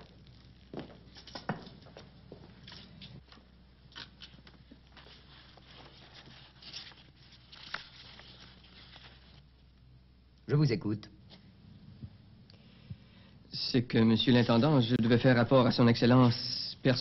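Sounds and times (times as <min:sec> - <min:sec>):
knocks and rustles of movement: 0:00.0 - 0:09.4
low mains hum: 0:00.0 - 0:17.0.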